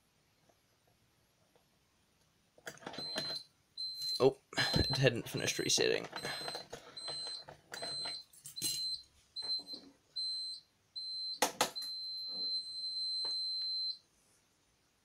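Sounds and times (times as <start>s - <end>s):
fire alarm beeping: 2.9s - 5.1s, 6.2s - 14.0s
continuous alarm tone: 2.9s - 14.0s.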